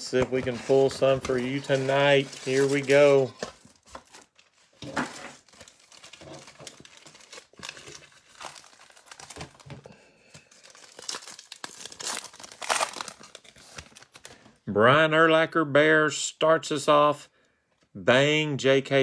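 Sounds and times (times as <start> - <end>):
foil packs crinkling: 0.1 - 14.4
pack wrapper tearing open: 5.4 - 9.7, 10.4 - 14.4.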